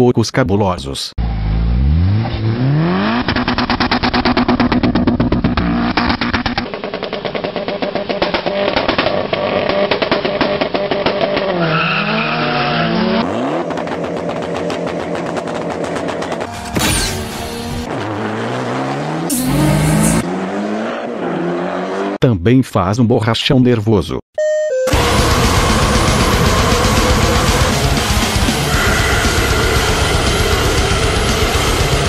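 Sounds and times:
car engine revving: 0:01.2 - 0:22.2, 0:24.9 - 0:32.0
exhaust popping and crackling: 0:02.9 - 0:16.6, 0:24.9 - 0:32.0.

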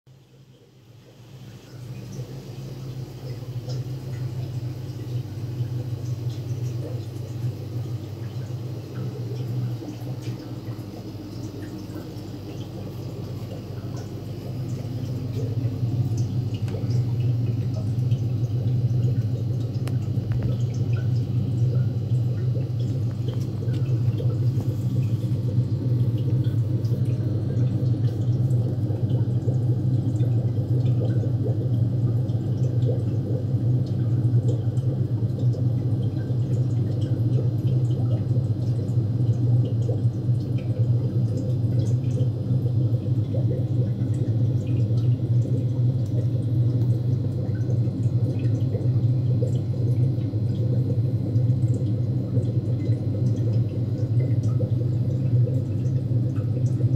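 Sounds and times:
water bubbling and dripping: 0:00.1 - 0:56.9
air pumps humming: 0:01.1 - 0:36.4.

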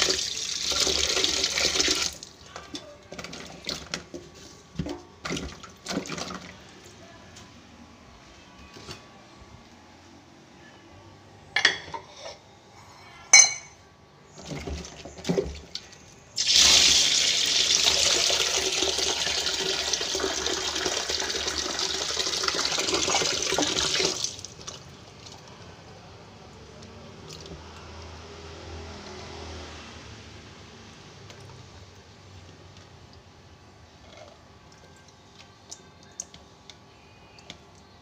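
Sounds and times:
tap water running into basin: 0:00.0 - 0:02.4, 0:04.8 - 0:06.6, 0:14.4 - 0:25.5
dishes clinking against sink: 0:11.5 - 0:12.4, 0:13.3 - 0:13.8.

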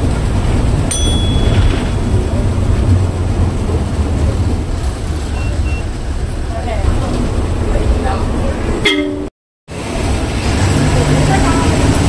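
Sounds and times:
low rumbling noise: 0:00.0 - 0:08.9.

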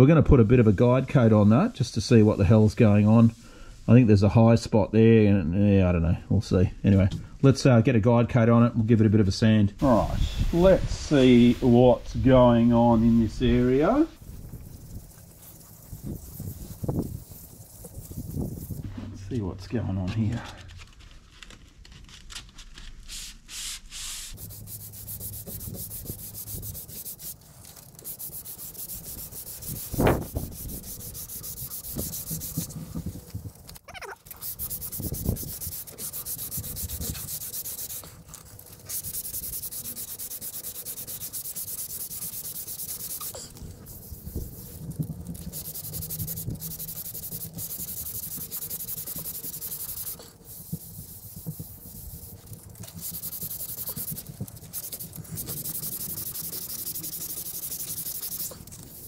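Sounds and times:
sandpaper scratching on panel: 0:10.6 - 0:19.1, 0:23.1 - 0:33.3, 0:34.2 - 0:59.0.

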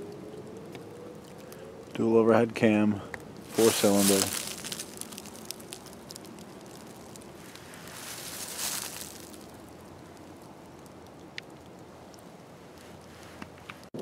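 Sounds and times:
steady soft hiss: 0:00.2 - 0:13.9
dry leaves rustling underfoot: 0:03.4 - 0:10.9.

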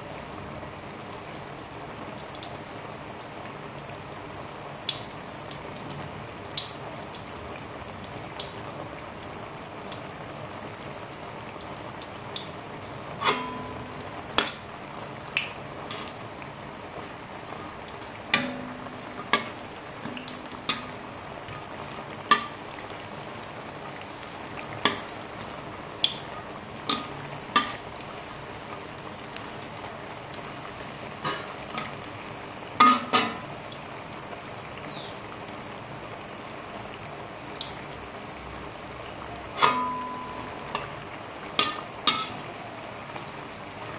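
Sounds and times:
deep-frying hiss: 0:00.0 - 0:43.9
metal ladle clinking on wok: 0:13.2 - 0:14.5, 0:32.8 - 0:33.4, 0:39.6 - 0:40.9, 0:41.6 - 0:42.4.

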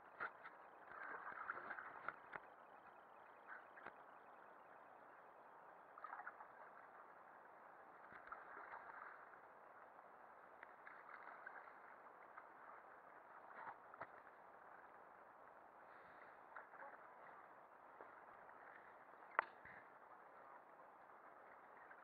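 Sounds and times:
water lapping: 0:00.0 - 0:22.0
small splashes: 0:00.1 - 0:02.6, 0:05.9 - 0:14.9.

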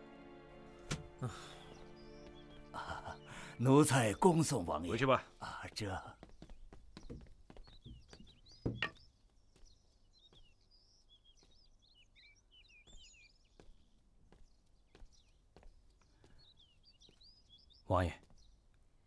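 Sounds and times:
small birds chirping: 0:00.6 - 0:19.0
light knocks and footsteps: 0:02.0 - 0:03.1, 0:03.8 - 0:19.0.

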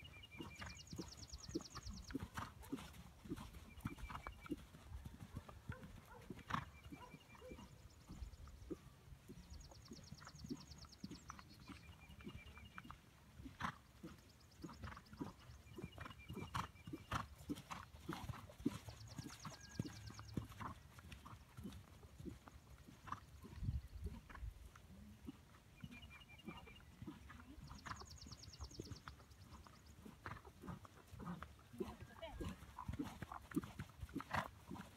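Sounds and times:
horse hoofbeats on sand: 0:00.4 - 0:07.5, 0:13.6 - 0:24.4, 0:30.0 - 0:34.9.

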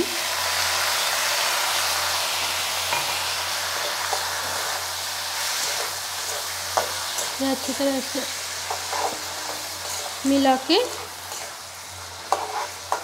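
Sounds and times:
vegetables sizzling in oil: 0:00.0 - 0:13.0
metal spatula scraping: 0:05.4 - 0:13.0.

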